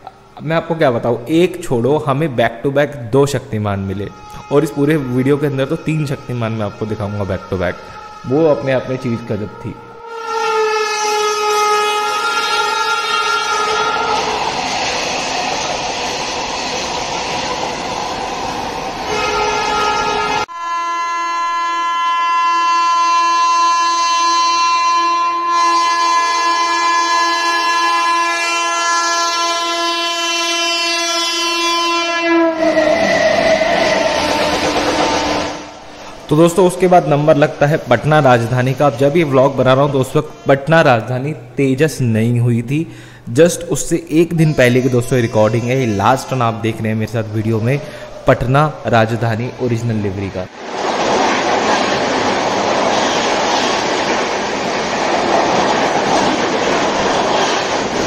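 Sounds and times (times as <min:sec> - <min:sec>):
passing train rumble: 0:00.0 - 0:21.1, 0:23.7 - 0:40.6, 0:43.5 - 0:58.0
train horn long blast: 0:07.7 - 0:14.3, 0:19.1 - 0:36.0.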